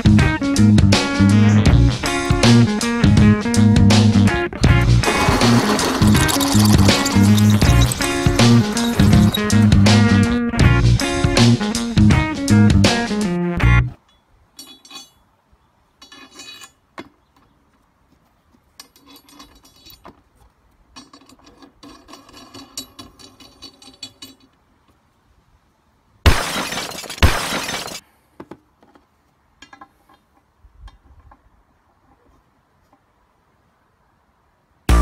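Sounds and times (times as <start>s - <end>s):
loud harsh noise: 5.0s - 10.0s
metal nuts clinking and rattling: 5.0s - 10.2s, 14.1s - 15.3s, 16.0s - 17.1s, 18.8s - 20.2s, 20.9s - 24.6s, 26.6s - 28.0s.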